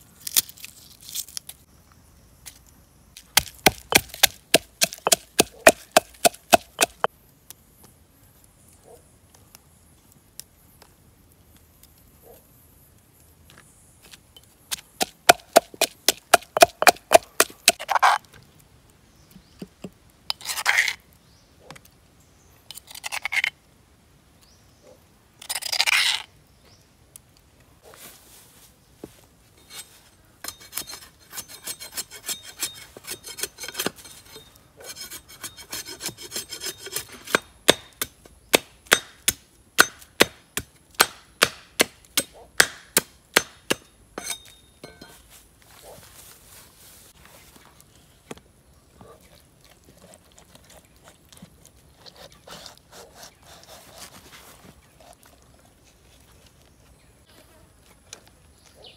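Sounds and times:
cleaver chopping wood: 0:03.2 - 0:07.1, 0:14.7 - 0:18.2, 0:35.8 - 0:44.4
pestle pounding in stone mortar: 0:03.4 - 0:07.1, 0:15.0 - 0:18.0, 0:37.0 - 0:44.4
rasping scrapes: 0:29.6 - 0:37.5, 0:50.0 - 0:55.1.

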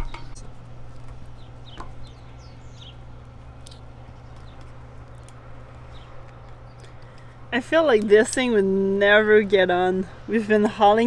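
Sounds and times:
small birds chirping: 0:00.0 - 0:10.3
steady low hum: 0:00.0 - 0:11.0
faint clicks: 0:03.2 - 0:07.3.

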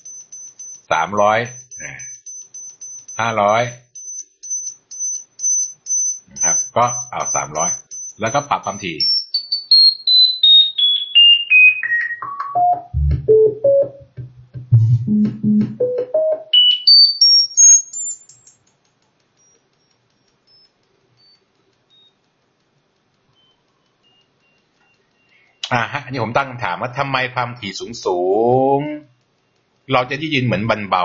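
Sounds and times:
short pure-tone beeps: 0:04.0 - 0:14.0, 0:14.7 - 0:18.5.

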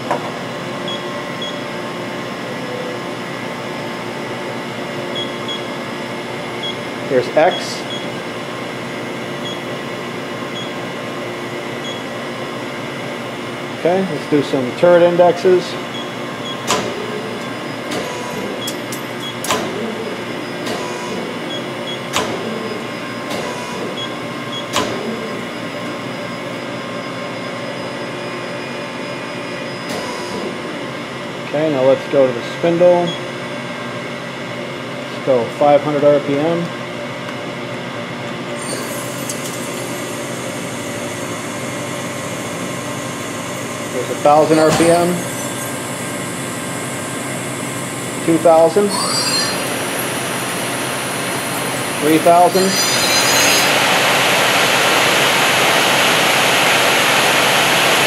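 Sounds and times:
machine hum with whining tones: 0:00.0 - 0:58.0
short high beeps: 0:48.9 - 0:49.8, 0:52.5 - 0:53.8.

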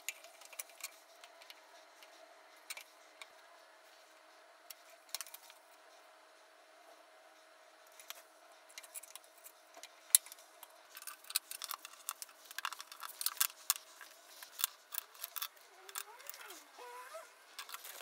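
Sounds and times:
faint steady hum: 0:00.0 - 0:18.0
wooden pieces and tools clicking: 0:10.2 - 0:16.6.

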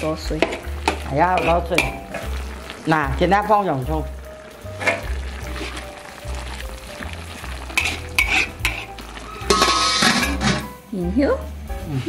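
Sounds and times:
food sizzling in a pan: 0:00.0 - 0:12.0
spatula scraping a pan: 0:00.4 - 0:02.6, 0:04.8 - 0:06.5, 0:07.4 - 0:10.7.

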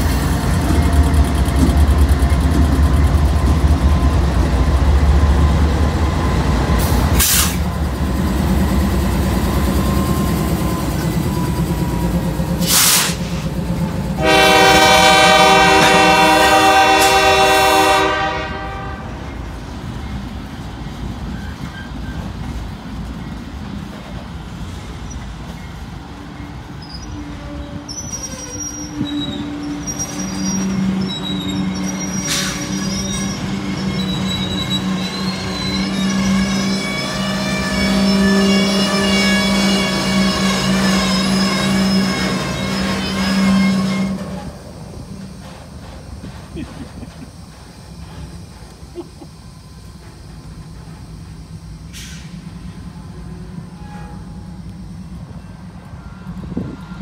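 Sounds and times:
freight cars rolling on rails: 0:00.0 - 0:57.0
locomotive horn blast: 0:14.1 - 0:19.4, 0:28.9 - 0:44.5, 0:53.6 - 0:54.7
high wheel squeal: 0:19.3 - 0:23.5, 0:24.6 - 0:46.4, 0:53.0 - 0:57.0.

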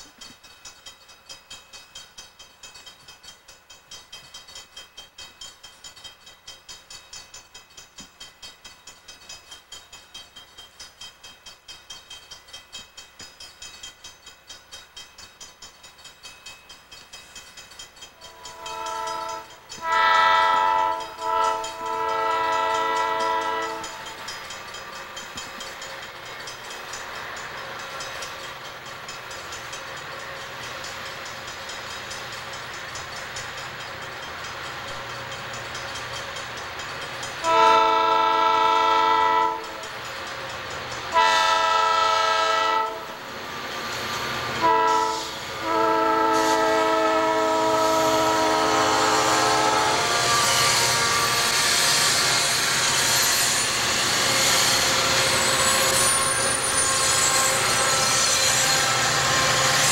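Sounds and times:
locomotive air horn blasts: 0:18.3 - 0:24.0, 0:37.4 - 0:39.7, 0:41.1 - 0:43.2, 0:44.6 - 0:51.3.

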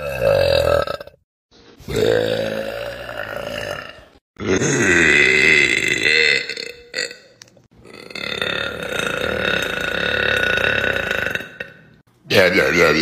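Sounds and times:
woman burping: 0:01.9 - 0:12.0.

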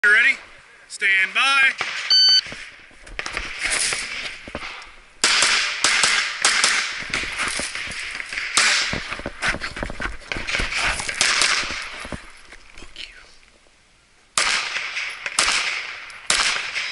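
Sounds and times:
pistol shots: 0:03.2 - 0:09.0, 0:11.2 - 0:11.8, 0:14.4 - 0:16.9.

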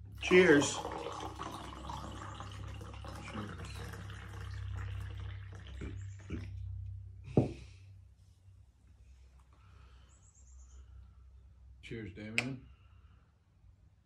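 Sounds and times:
soda pouring and fizzing: 0:00.0 - 0:06.5.

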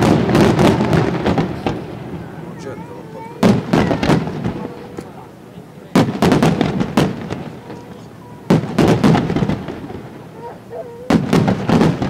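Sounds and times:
firework shells bursting: 0:05.9 - 0:10.4.

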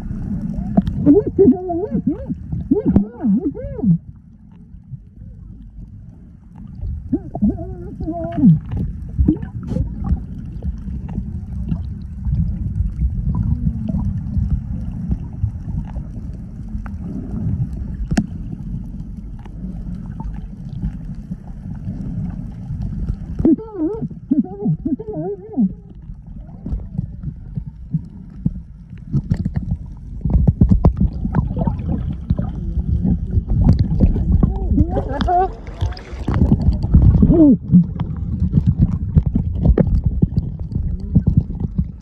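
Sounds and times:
underwater churning rumble: 0:00.0 - 0:42.0
muffled warbling voices: 0:00.6 - 0:04.0, 0:07.1 - 0:08.7, 0:23.4 - 0:26.7, 0:32.5 - 0:38.0.

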